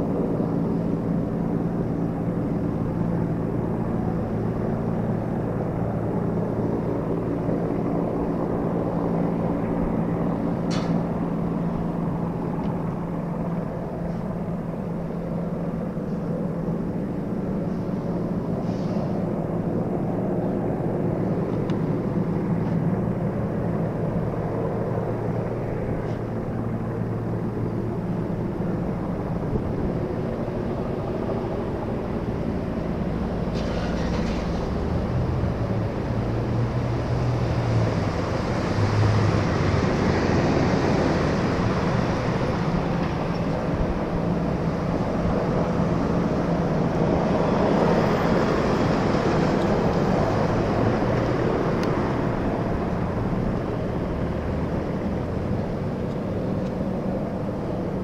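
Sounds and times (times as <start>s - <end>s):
helicopter rotor and engine: 0.0s - 58.0s.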